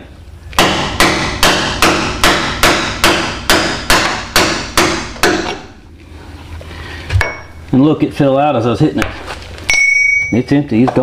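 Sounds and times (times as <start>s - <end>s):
hammer striking steel chisel: 0.6s - 5.7s, 7.2s - 7.6s.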